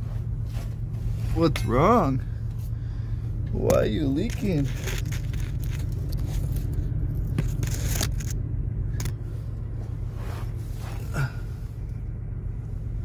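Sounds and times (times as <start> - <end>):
engine idling: 0.0 - 13.0
scrapes and knocks: 4.2 - 8.4.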